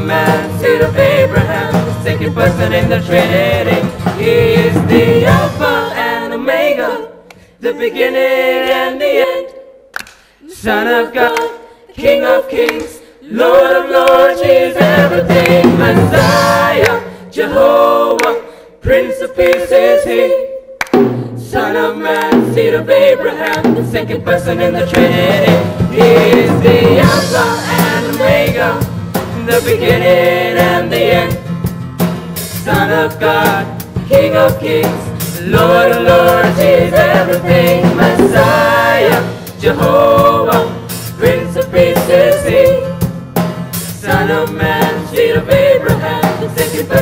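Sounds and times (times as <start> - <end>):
acoustic guitar accompaniment: 0.0 - 5.8, 23.7 - 47.0
group singing in harmony: 0.0 - 47.0.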